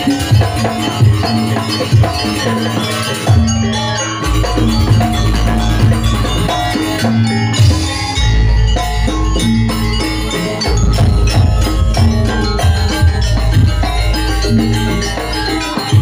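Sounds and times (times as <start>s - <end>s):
drums: 0.0s - 16.0s
metallophones ringing: 0.0s - 16.0s
deep bass: 4.3s - 16.0s.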